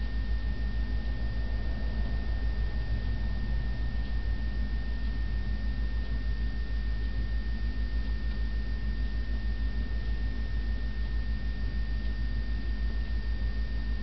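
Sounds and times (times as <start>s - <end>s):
steady low rumble: 0.0s - 10.1s
faint high-pitched whine: 0.0s - 14.0s.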